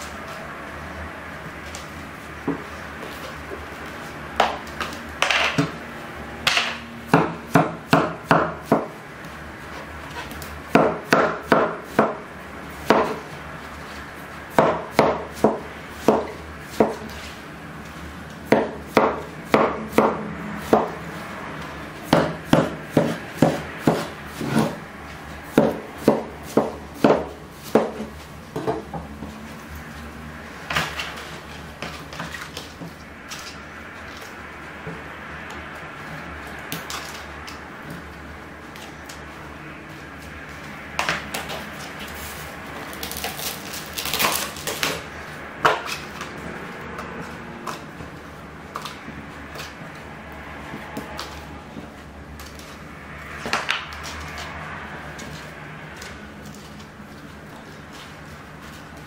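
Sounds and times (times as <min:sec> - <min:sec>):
knife chopping on wooden board: 0:06.5 - 0:08.9, 0:10.7 - 0:12.2, 0:12.8 - 0:13.2, 0:14.5 - 0:17.2, 0:18.4 - 0:21.0, 0:22.0 - 0:24.8, 0:25.5 - 0:29.0.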